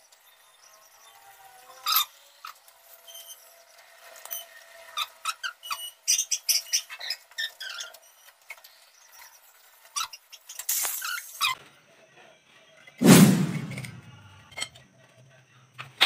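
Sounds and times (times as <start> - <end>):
short scrape: 13.0 - 14.1.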